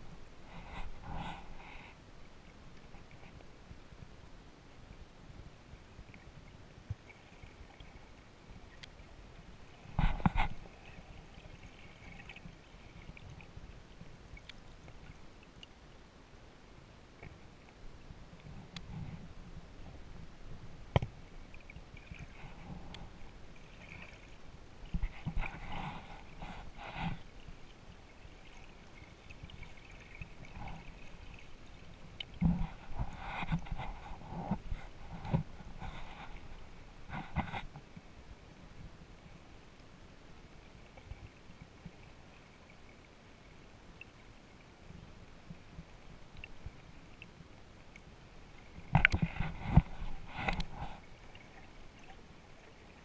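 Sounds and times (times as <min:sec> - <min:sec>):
muffled underwater hiss: 0:00.0 - 0:53.0
small clicks underwater: 0:08.7 - 0:09.0, 0:14.3 - 0:15.8, 0:18.4 - 0:19.2, 0:20.9 - 0:23.2, 0:32.1 - 0:38.0, 0:45.5 - 0:52.2.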